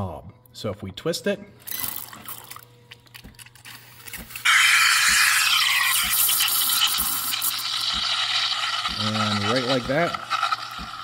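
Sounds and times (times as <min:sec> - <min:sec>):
steam wand hissing: 0:04.4 - 0:08.0.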